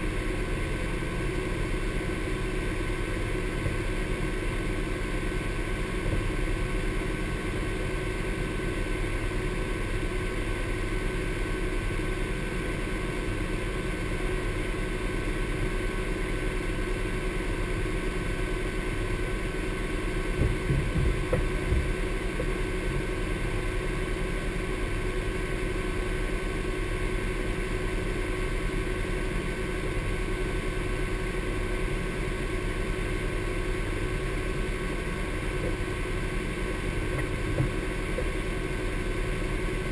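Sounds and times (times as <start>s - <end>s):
engine idling: 0.0s - 39.9s
low engine thumps: 20.2s - 23.2s, 35.5s - 39.9s.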